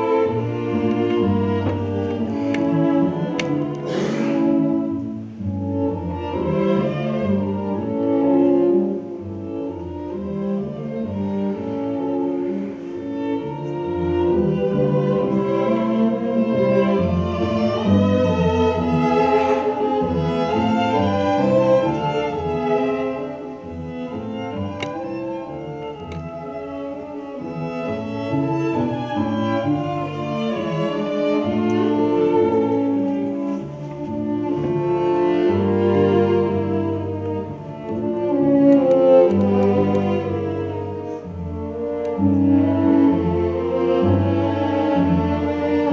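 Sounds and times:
string quartet playing: 0.0 - 45.9.

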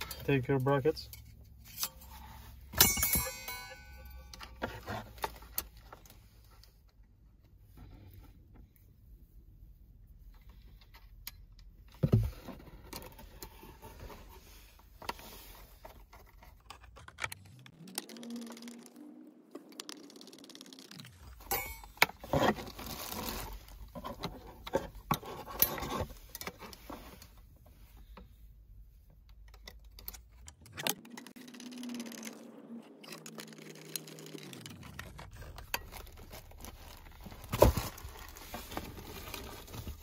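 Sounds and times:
metal clicks and scrapes: 29.3 - 40.0.

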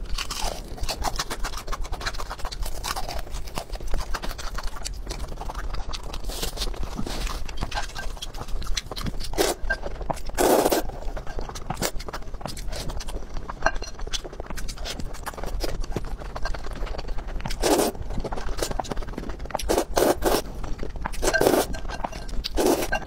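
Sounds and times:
wet chewing noodles: 0.0 - 23.0
slurping: 6.1 - 13.2, 16.3 - 23.0.

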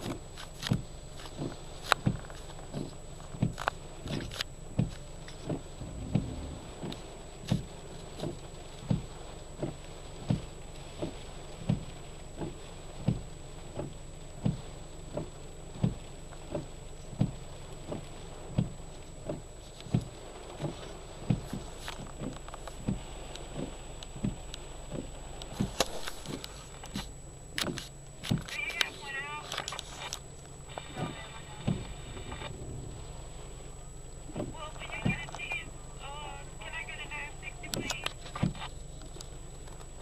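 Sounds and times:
windshield wipers knocking: 0.0 - 35.8, 37.7 - 40.0
rain hissing: 0.0 - 40.0
low hum: 5.6 - 7.4, 28.0 - 40.0.

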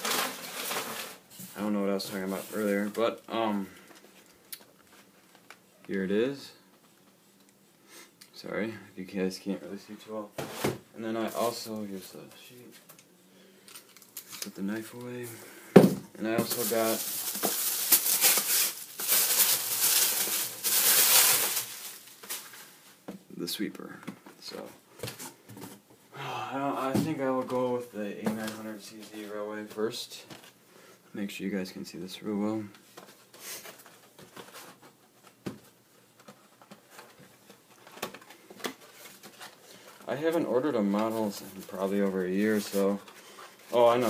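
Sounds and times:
packing paper rustling: 0.0 - 5.6, 16.2 - 23.0.

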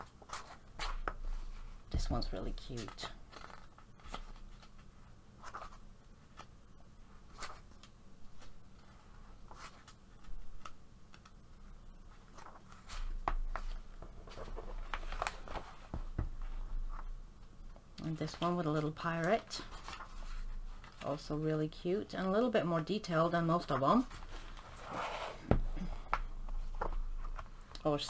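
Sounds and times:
paper pages rustling: 2.6 - 6.5, 7.3 - 17.1, 18.3 - 21.3
book rubbing: 24.2 - 25.6.

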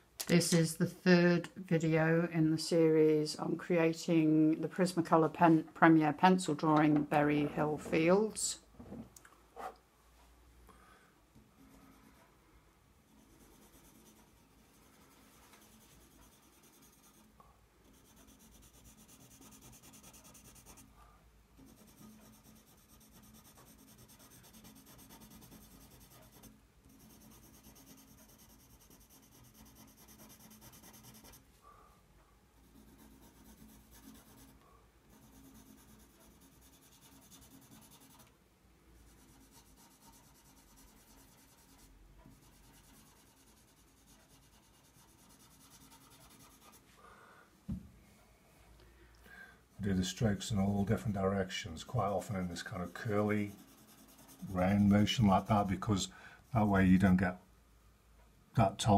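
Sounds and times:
pencil scratching on paper: 11.6 - 12.3, 13.1 - 21.0, 21.6 - 31.5, 32.6 - 38.3, 39.0 - 46.9, 51.8 - 55.8.

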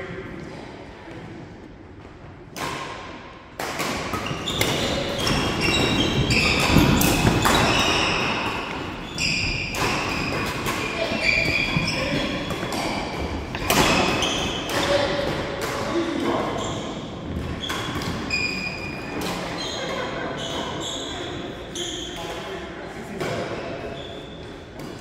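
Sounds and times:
rackets striking shuttlecock: 2.5 - 8.9, 9.6 - 15.9.

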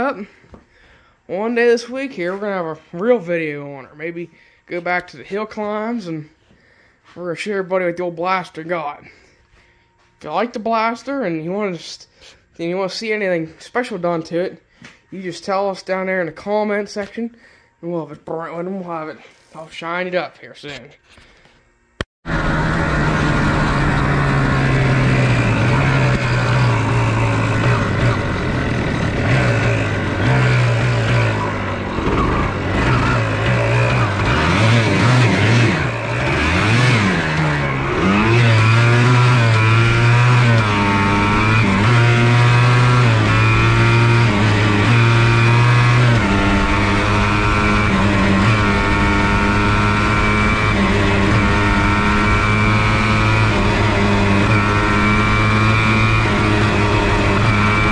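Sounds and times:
two-stroke engine revving: 22.2 - 57.9.

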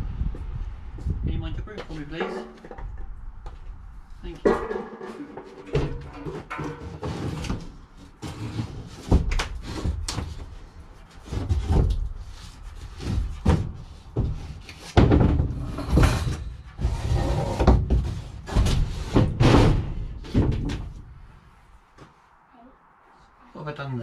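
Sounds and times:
board scraping: 4.5 - 20.6
board thudding on wood: 13.0 - 16.4.

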